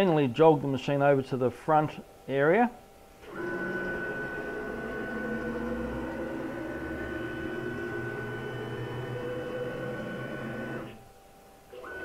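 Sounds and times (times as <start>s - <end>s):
router motors whining: 3.2s - 11.0s, 11.8s - 12.0s.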